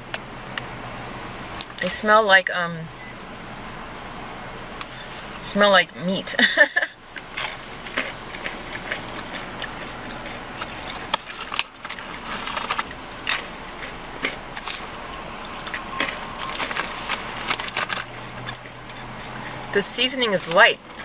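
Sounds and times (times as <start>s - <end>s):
crunchy nuts being chewed: 7.2s - 19.8s
plastic snack bag crinkling: 7.3s - 13.5s, 15.4s - 18.8s.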